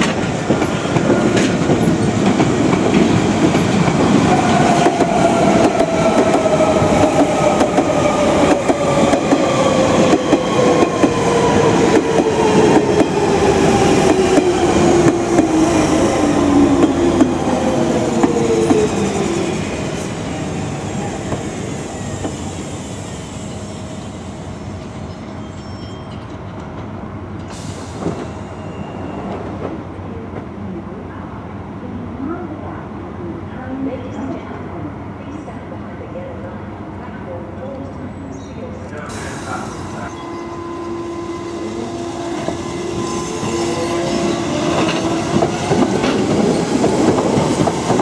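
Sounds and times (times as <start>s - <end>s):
train rumble: 0.0s - 22.8s, 33.6s - 48.0s.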